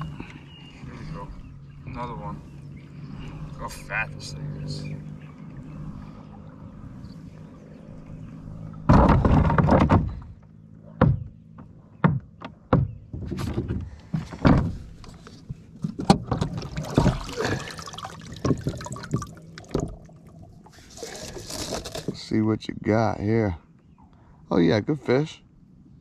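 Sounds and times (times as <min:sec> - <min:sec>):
scraping thump on kayak: 0:13.1 - 0:17.3, 0:20.7 - 0:22.3.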